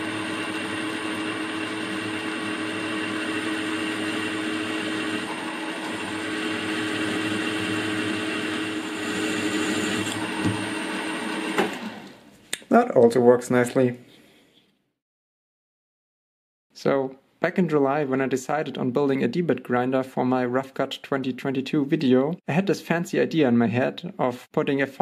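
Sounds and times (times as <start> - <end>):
drill cutting steel: 0.0 - 11.7
milling machine motor whine: 0.0 - 12.2.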